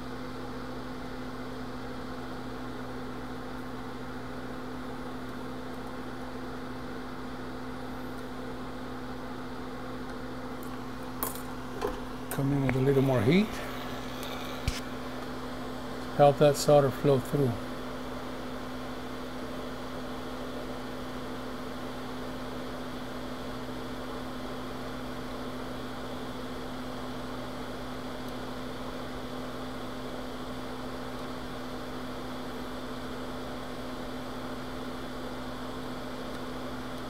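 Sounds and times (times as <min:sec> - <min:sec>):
electrical hum: 0:00.0 - 0:37.0.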